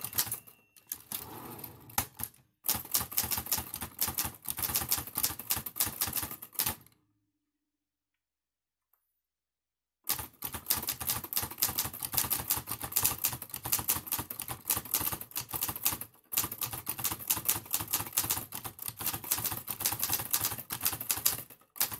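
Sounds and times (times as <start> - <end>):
typewriter keys clacking: 0.0 - 1.2, 10.1 - 21.9.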